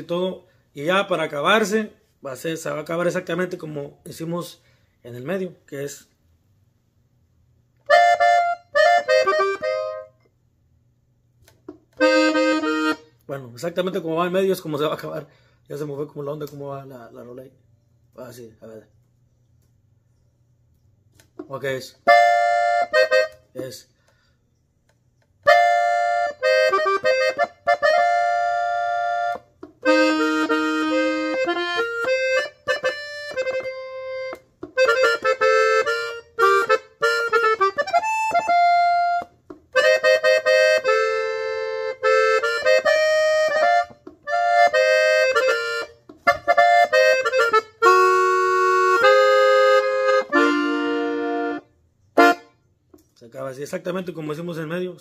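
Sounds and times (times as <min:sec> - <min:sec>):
button accordion melody: 0:07.8 - 0:10.3, 0:11.8 - 0:13.3, 0:22.0 - 0:23.8, 0:25.4 - 0:52.7.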